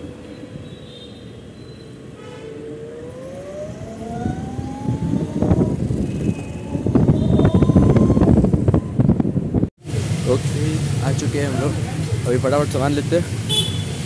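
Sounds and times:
wind buffeting microphone: 3.4s - 9.7s.

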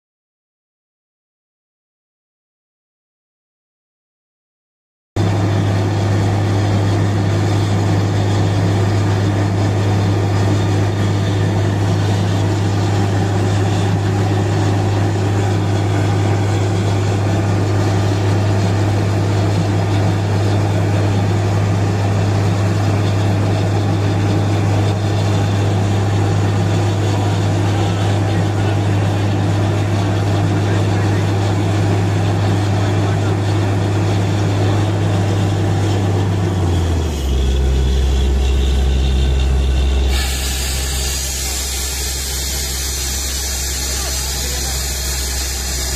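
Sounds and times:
drilling rig engine drone: 5.2s - 45.9s
slurry flushing out: 40.0s - 45.9s.

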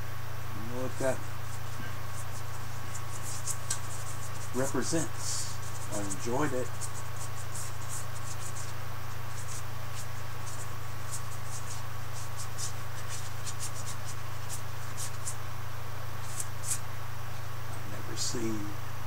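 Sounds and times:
steady low hum: 0.0s - 19.0s
paintbrush scratching and dabbing: 0.8s - 15.4s, 16.2s - 16.8s.

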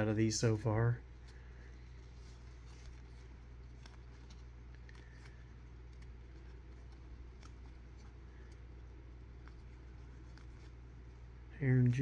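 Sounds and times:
steady low hum: 0.0s - 12.0s
trading cards flipped by hand: 2.0s - 8.7s, 9.3s - 10.8s.

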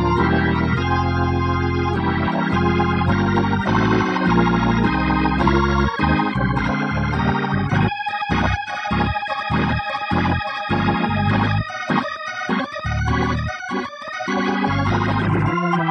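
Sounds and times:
organ playing chords: 0.0s - 15.9s.

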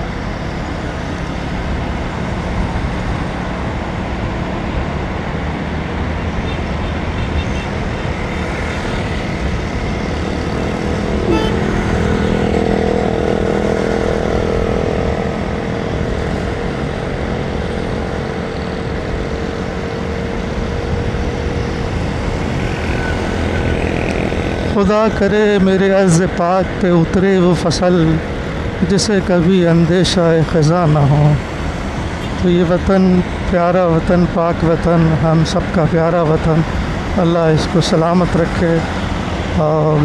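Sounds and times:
surrounding traffic: 0.0s - 40.0s
wind: 0.0s - 40.0s
motorcycle engine: 6.1s - 25.8s.

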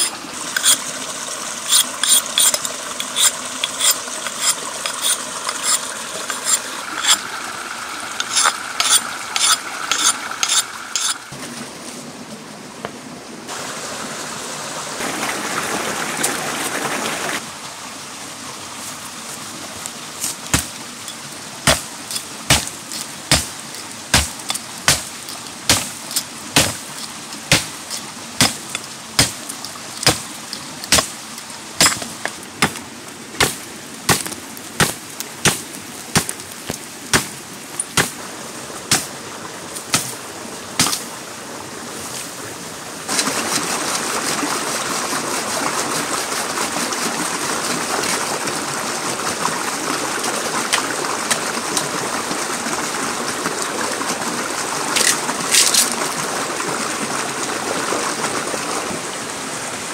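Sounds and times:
steady rushing hiss: 0.0s - 11.4s
chopping strikes: 20.5s - 20.8s, 21.7s - 26.9s, 27.5s - 31.1s, 31.8s - 32.8s, 33.4s - 37.3s, 37.9s - 38.2s, 38.9s - 39.1s, 39.9s - 40.1s, 40.8s - 41.0s.

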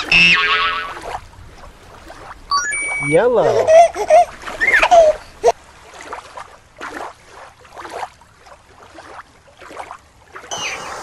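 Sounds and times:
water sloshing and swirling: 0.0s - 11.0s
whistle-like tone gliding downward: 2.5s - 3.1s.

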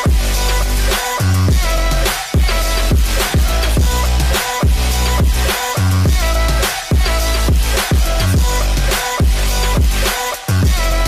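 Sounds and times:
electronic music with steady beat: 0.0s - 11.0s
deep bass kicks: 1.4s - 10.0s.

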